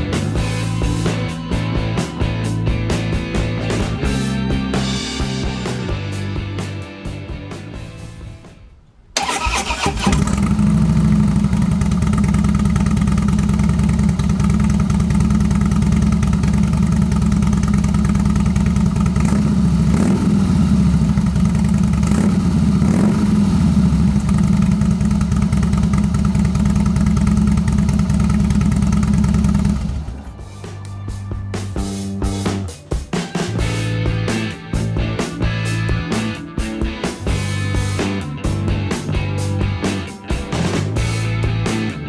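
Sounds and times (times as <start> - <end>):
motorcycle engine idling: 9.2 - 32.9.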